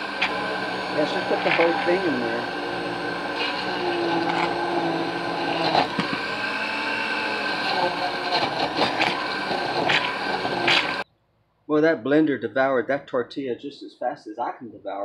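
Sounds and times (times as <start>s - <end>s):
blender motor whirring: 0.0s - 11.0s
sharp knocks in blender: 5.7s - 6.3s.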